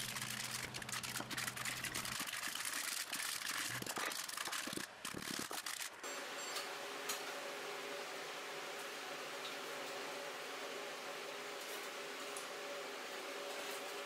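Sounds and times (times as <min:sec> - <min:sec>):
foil crinkling: 0:00.0 - 0:06.0
low shop hum: 0:00.0 - 0:14.0.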